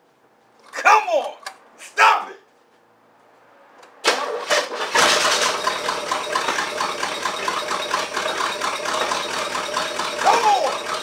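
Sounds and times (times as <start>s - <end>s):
car engine cranking and sputtering: 4.0s - 11.0s.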